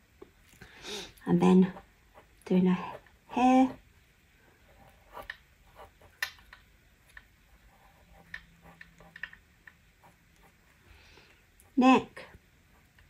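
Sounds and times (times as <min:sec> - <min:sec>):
pencil scratching on paper: 0:01.6 - 0:03.8, 0:04.7 - 0:06.2, 0:07.4 - 0:09.3, 0:09.9 - 0:10.9.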